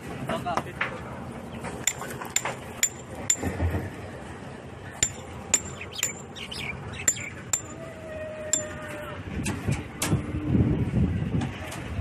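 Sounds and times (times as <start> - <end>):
metal clinks with ringing: 7.1 - 7.8.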